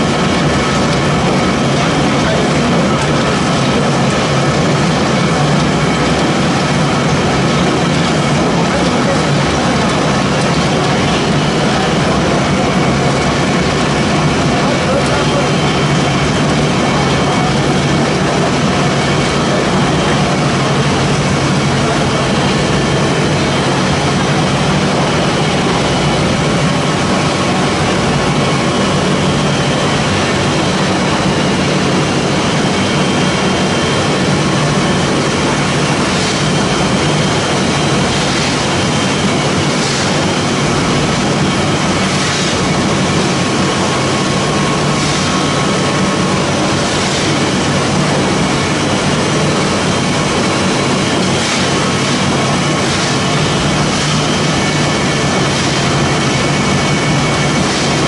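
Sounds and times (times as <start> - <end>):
pellet mill machine drone: 0.0 - 58.0.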